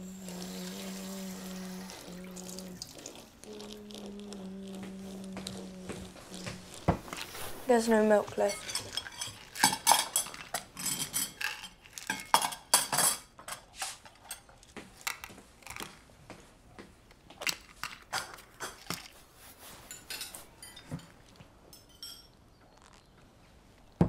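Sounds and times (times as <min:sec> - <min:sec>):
crockery and cutlery clinking: 0:07.8 - 0:14.6, 0:19.7 - 0:22.4.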